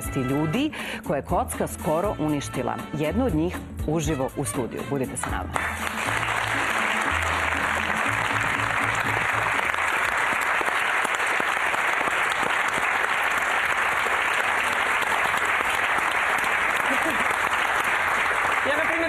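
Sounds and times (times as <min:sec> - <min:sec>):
audience applauding: 0:05.6 - 0:19.0.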